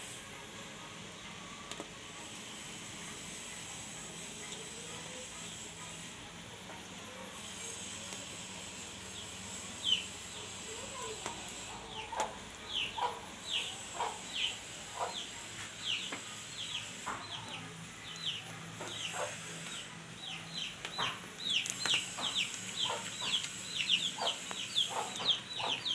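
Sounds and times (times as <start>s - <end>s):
chicks peeping: 10.9s - 25.9s.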